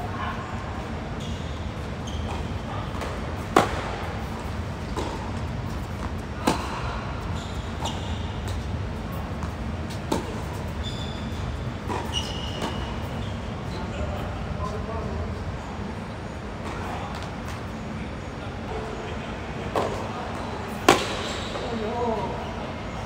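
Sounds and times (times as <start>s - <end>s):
tennis racquet striking ball: 3.0s - 4.1s, 5.9s - 6.8s, 9.4s - 10.3s, 20.8s - 21.3s.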